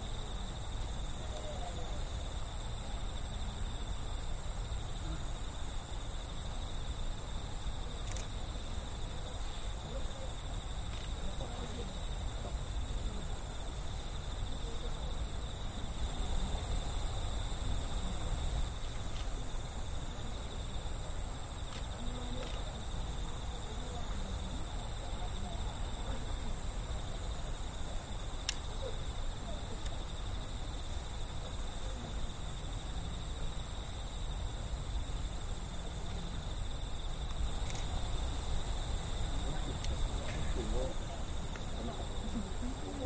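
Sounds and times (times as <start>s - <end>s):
sharp click: 28.4s - 28.6s.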